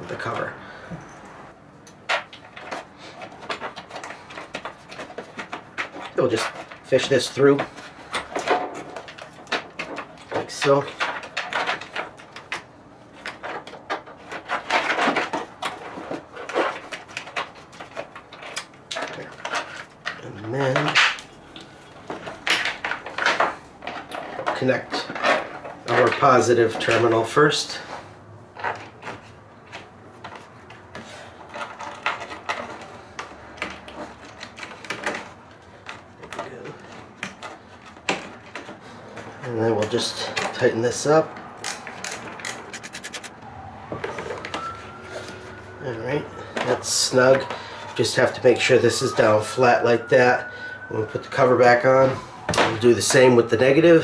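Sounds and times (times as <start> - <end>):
metal parts clicking and tapping: 41.6 - 43.4
cable rubbing plastic panel: 41.7 - 43.4.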